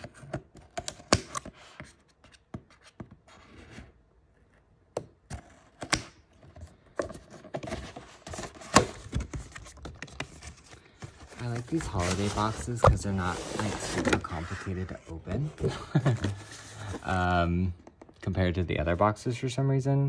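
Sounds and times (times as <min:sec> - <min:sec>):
scraping of cardboard and plastic: 0:06.6 - 0:17.4.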